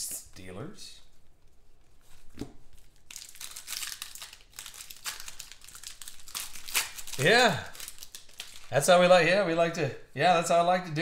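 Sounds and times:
foil wrapper crinkling and tearing: 2.7 - 9.1.

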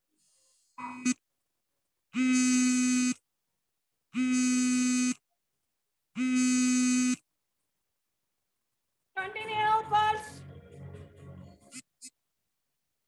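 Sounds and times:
electronic buzzer beeping: 0.8 - 1.2, 2.2 - 3.2, 4.2 - 5.2, 6.2 - 7.2.

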